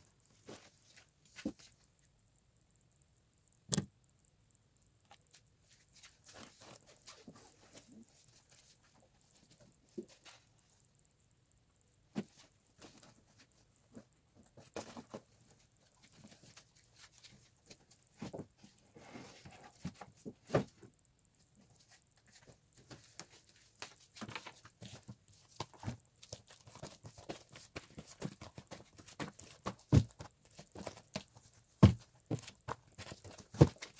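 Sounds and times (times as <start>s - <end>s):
rustling: 12.1s - 33.9s.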